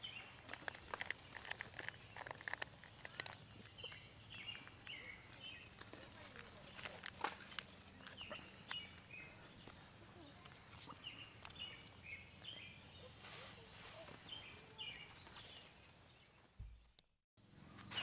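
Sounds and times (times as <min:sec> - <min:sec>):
faint birds chirping: 0:00.0 - 0:18.0
foil pouch crinkling: 0:00.4 - 0:03.9, 0:06.0 - 0:07.8.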